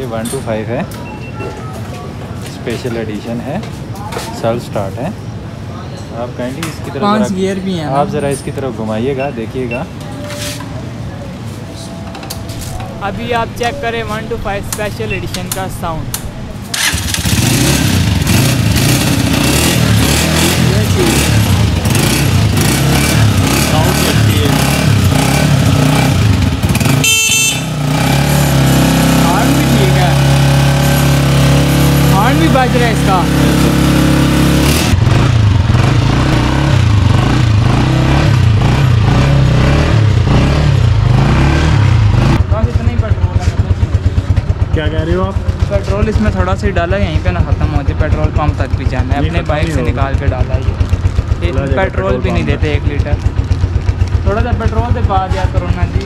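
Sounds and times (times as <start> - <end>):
motorcycle engine revving: 12.6 - 56.0
electric starter cranking: 14.7 - 18.3.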